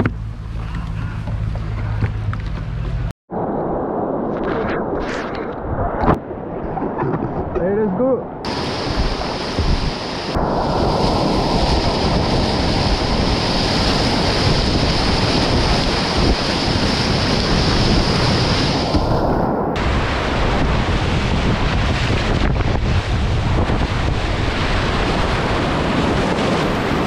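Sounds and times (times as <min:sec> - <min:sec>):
wind buffeting microphone: 0:00.0 - 0:27.0
rapids rushing and splashing: 0:08.4 - 0:27.0.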